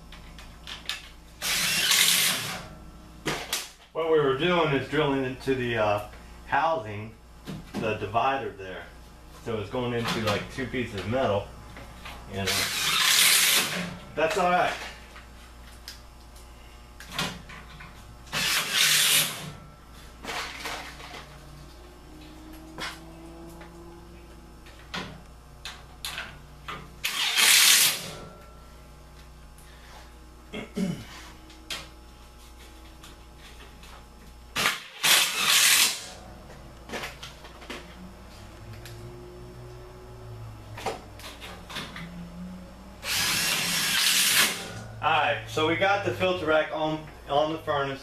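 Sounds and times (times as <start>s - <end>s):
impact driver driving screw: 1.4s - 2.6s, 12.6s - 13.8s, 18.3s - 19.5s, 27.0s - 28.1s, 34.6s - 36.1s, 43.0s - 44.7s.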